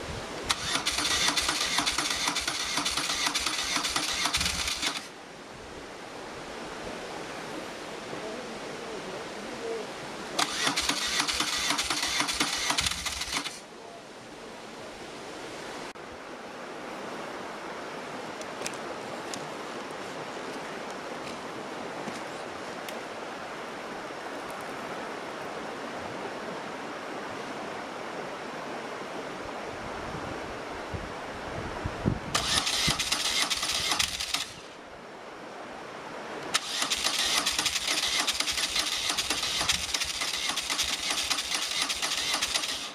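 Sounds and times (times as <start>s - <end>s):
motorcycle engine cranking on starter: 0.5s - 5.1s, 10.4s - 13.6s, 32.4s - 34.7s, 36.6s - 42.9s.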